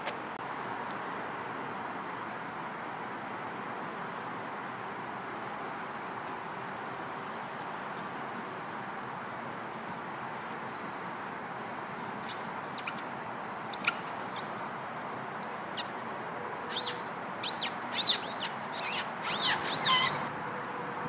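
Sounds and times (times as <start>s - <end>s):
pajamas squeaking on plastic slide: 16.7s - 20.3s.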